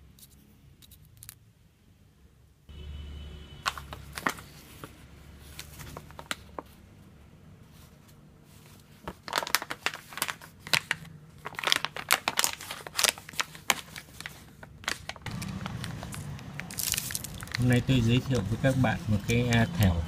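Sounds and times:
foil bag crinkling: 8.9 - 18.7.

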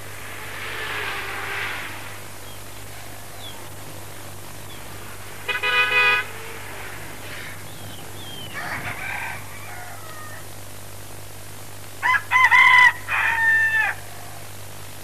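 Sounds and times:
steady hum and hiss: 0.0 - 15.0
bird calls: 1.1 - 5.1, 6.3 - 10.4.

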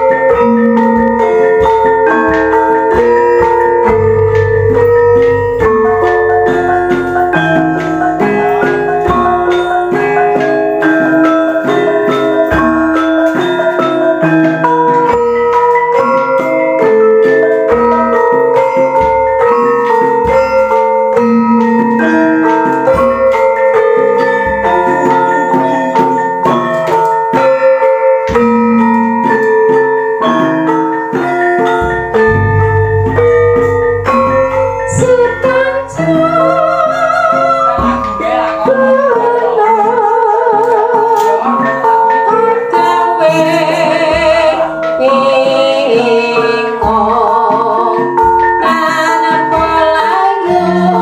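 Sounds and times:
kettle gongs ringing: 0.0 - 9.6, 31.8 - 38.6
gamelan ensemble playing: 0.0 - 51.0
metallophone melodies: 0.0 - 51.0
deep low gong strokes: 3.4 - 7.5, 31.8 - 36.8.

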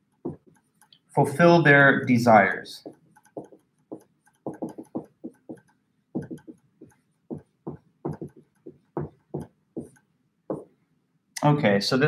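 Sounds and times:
marker writing on whiteboard: 0.0 - 0.8, 2.8 - 10.8.

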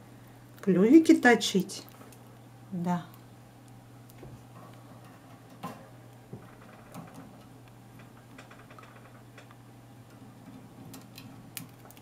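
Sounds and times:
steady low hum: 0.0 - 12.0
bird beak and feet ticking: 10.9 - 12.0.

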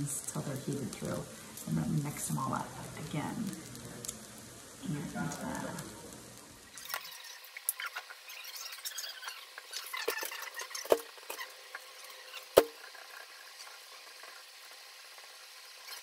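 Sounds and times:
faint crackling sizzle: 0.0 - 16.0
spatula scraping a skillet: 6.7 - 16.0.

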